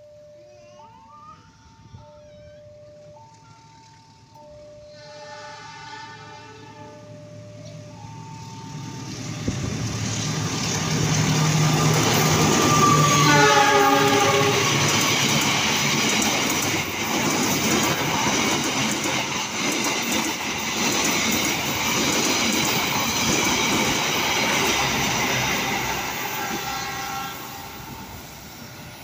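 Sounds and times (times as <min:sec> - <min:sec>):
train wheels rumbling on rails: 0:03.5 - 0:29.0
train horn dropping in pitch: 0:04.8 - 0:07.2, 0:12.3 - 0:14.8, 0:25.4 - 0:28.1.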